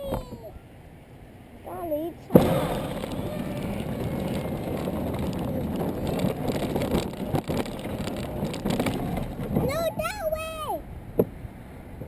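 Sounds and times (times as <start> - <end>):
ride-on car rumbling: 2.2 - 12.0
rattles and knocks: 2.4 - 9.8.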